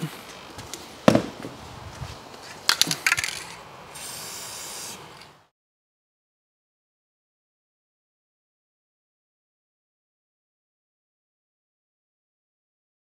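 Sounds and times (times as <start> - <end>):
aerosol spray hiss: 3.9 - 5.1.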